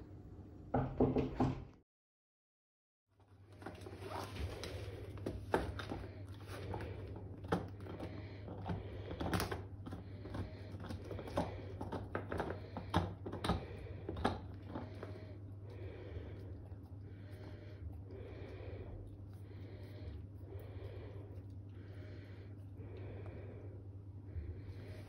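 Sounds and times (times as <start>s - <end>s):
low steady hum: 3.2s - 25.0s.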